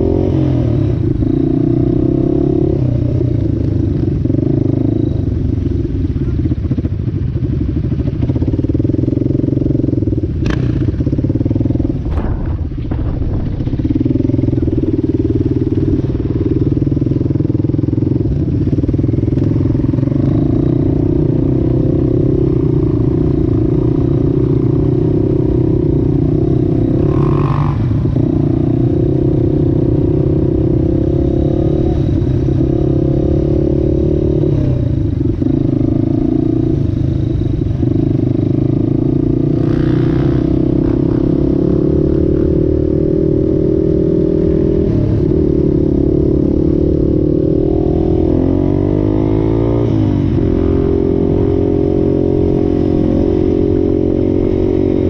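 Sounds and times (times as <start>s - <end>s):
quad engine revving: 38.0s - 55.0s.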